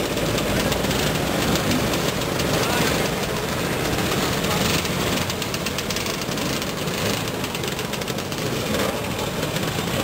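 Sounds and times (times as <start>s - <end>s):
scooter engines riding past: 0.0s - 10.0s.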